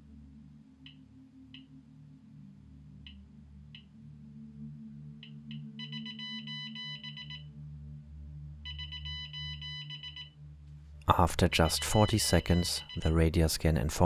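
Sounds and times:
electronic alarm beeping: 5.2s - 7.6s, 8.6s - 10.4s, 11.7s - 13.3s.

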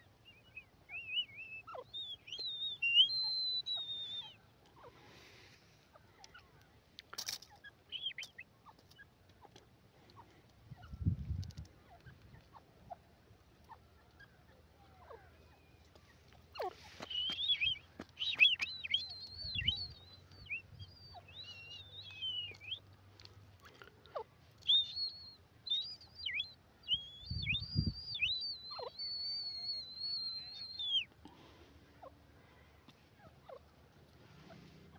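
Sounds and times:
francolin whistled calls: 0.3s - 4.4s, 16.6s - 22.8s, 24.6s - 31.1s.

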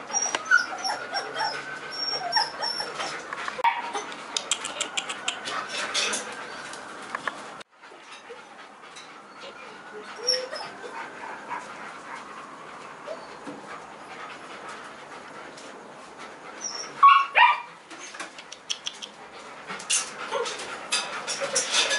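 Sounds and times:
puppy yipping: 0.1s - 4.1s, 16.6s - 19.1s.

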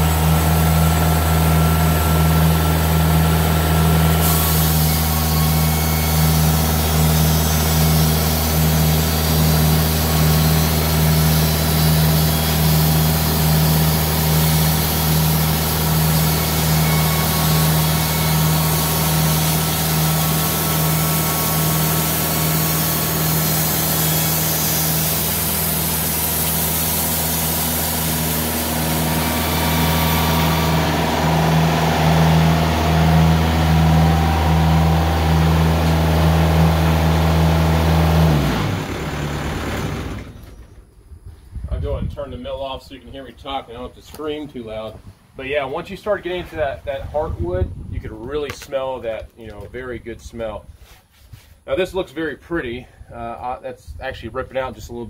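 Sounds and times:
engine droning: 0.0s - 41.1s
saw blade hissing through log: 3.9s - 33.1s.

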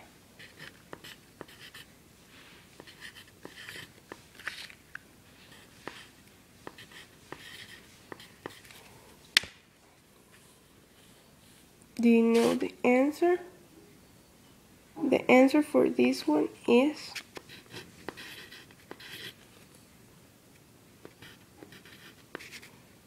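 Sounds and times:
pencil scratching on paper: 0.4s - 1.9s, 2.8s - 4.2s, 5.5s - 8.7s, 17.1s - 19.4s, 21.1s - 22.7s.

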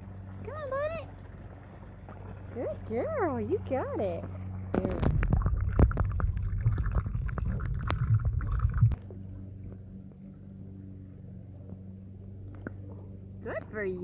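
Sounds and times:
steady low hum: 0.0s - 14.0s
underwater sloshing and gurgling: 4.3s - 10.4s.

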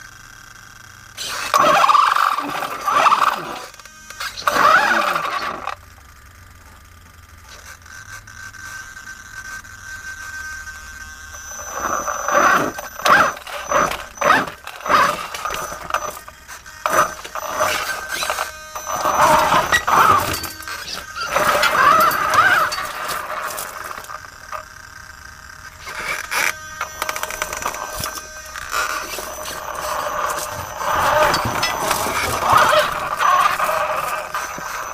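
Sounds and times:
electric drive whining: 0.0s - 34.9s
tyres crunching on gravel: 11.4s - 24.8s, 25.7s - 34.9s.

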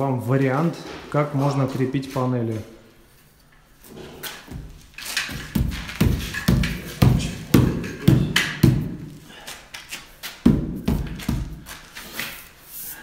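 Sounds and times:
hammer striking nail: 5.2s - 9.0s.

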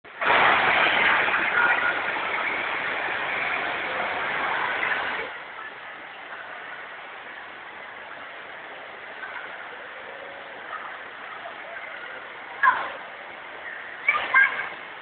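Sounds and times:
noisy din of indoor pool hall: 0.0s - 15.0s.

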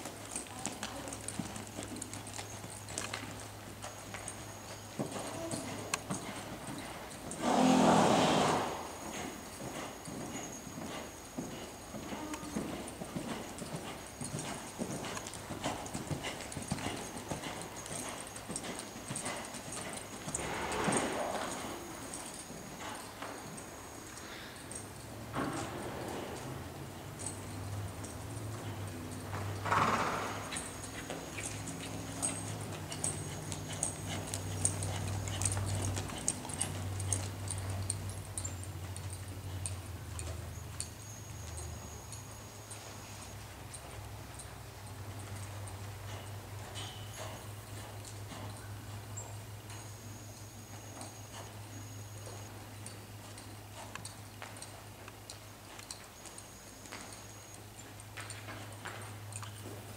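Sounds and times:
horse hoofbeats trotting on dirt: 0.0s - 59.9s
tack jingling: 12.2s - 24.8s, 30.5s - 42.0s.

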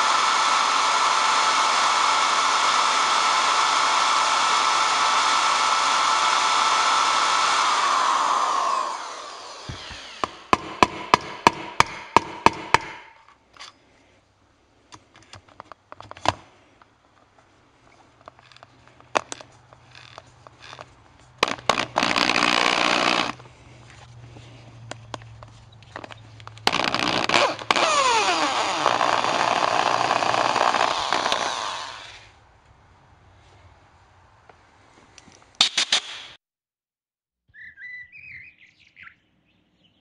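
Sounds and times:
power drill running: 0.0s - 10.7s, 21.4s - 23.4s, 26.6s - 32.3s.

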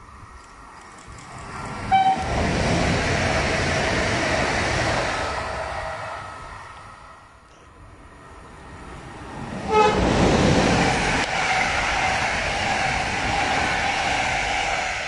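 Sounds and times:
train wheels rushing on rails: 0.0s - 15.0s
train horn toot: 1.9s - 2.3s, 9.7s - 10.1s.

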